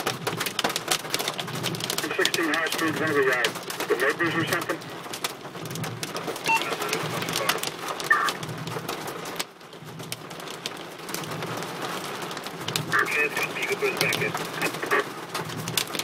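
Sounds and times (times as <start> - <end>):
hail ticking on car roof: 0.0 - 16.0
rain rushing: 0.0 - 16.0.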